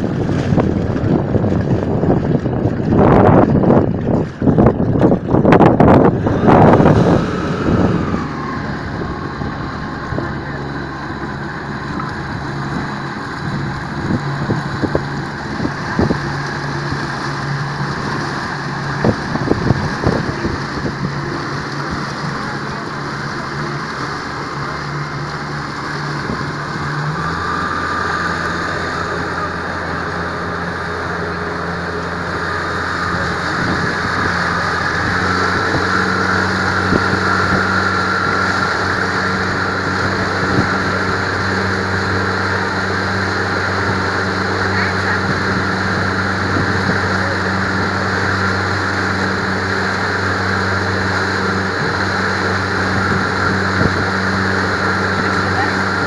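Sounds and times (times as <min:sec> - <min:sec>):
wind rushing: 0:00.0 - 0:22.4
motorboat engine running: 0:00.0 - 0:56.0
water rushing: 0:00.0 - 0:56.0.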